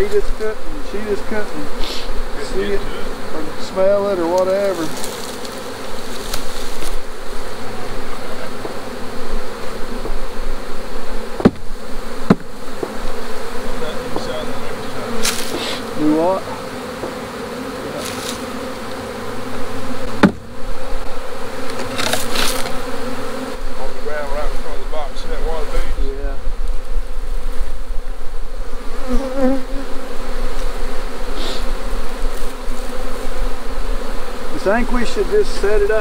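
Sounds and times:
bees buzzing: 0.0s - 36.0s
wooden hive boxes knocking: 2.6s - 10.3s, 11.3s - 18.8s, 19.5s - 23.0s.

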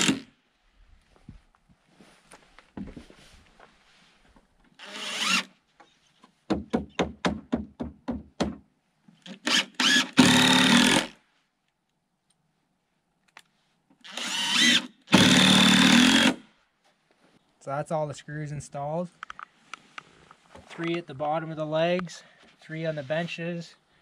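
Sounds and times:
impact driver driving screws: 9.3s - 11.1s, 14.0s - 16.4s.

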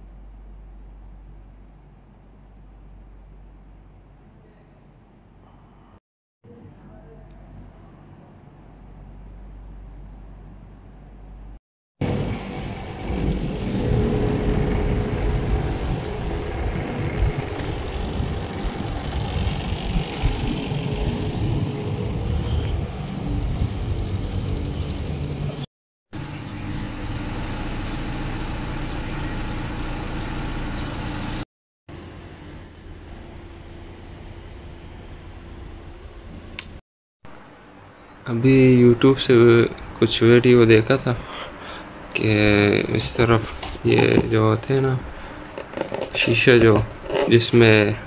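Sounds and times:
low hum: 0.0s - 38.2s
traffic rumble: 0.0s - 48.0s.

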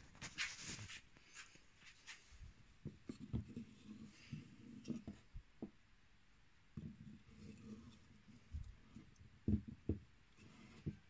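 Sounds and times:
wood rubbing: 0.0s - 5.7s, 6.8s - 11.0s
wood knocking on wood: 9.4s - 10.1s.

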